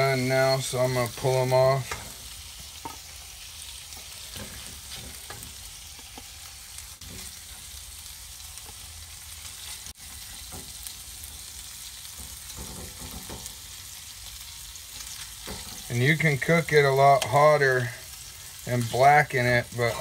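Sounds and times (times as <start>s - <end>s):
fish sizzling in a skillet: 0.0s - 20.0s
spatula tapping and scraping pan: 2.7s - 3.1s, 12.1s - 13.7s.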